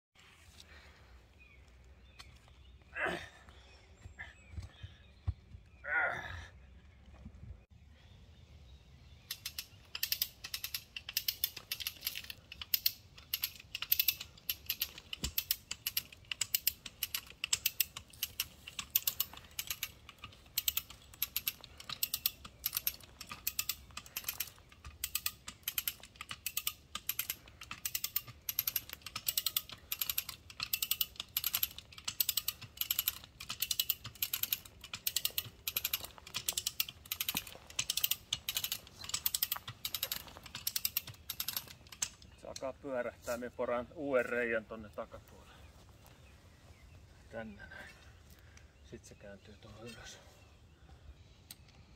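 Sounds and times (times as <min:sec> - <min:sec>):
ratchet cable puller clicking: 0:09.3 - 0:42.3.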